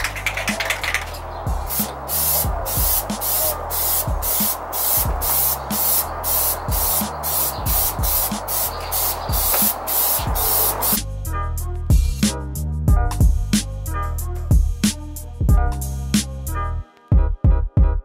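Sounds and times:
background music with a beat: 0.0s - 18.0s
aerosol can spraying: 0.2s - 11.0s.

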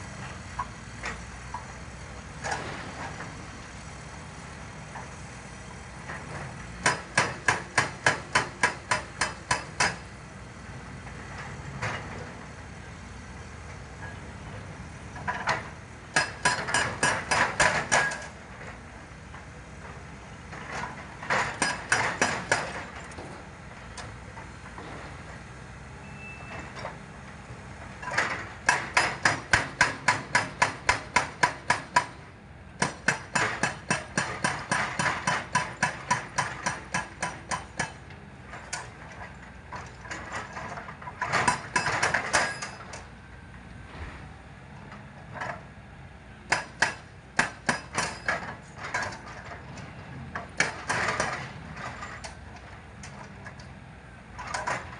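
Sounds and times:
excavator engine running: 0.0s - 54.9s
hydraulic rock breaker hammering rock: 6.0s - 10.2s, 15.1s - 18.8s, 19.4s - 25.3s, 27.8s - 43.1s, 46.5s - 53.7s, 54.3s - 54.9s.

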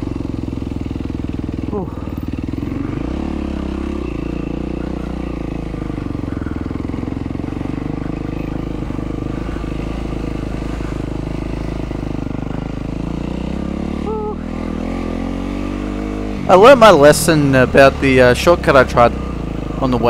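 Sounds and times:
dirt bike engine running: 0.0s - 20.0s.

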